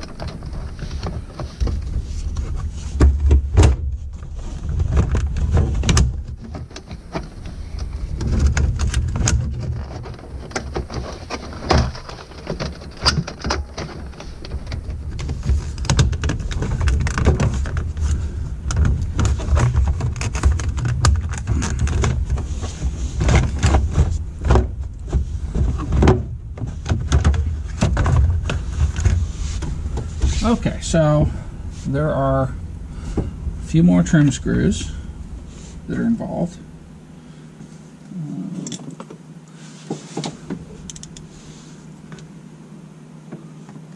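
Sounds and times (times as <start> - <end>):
plastic scraping on plastic: 0.0 - 31.0
steady low rumble: 0.0 - 39.3.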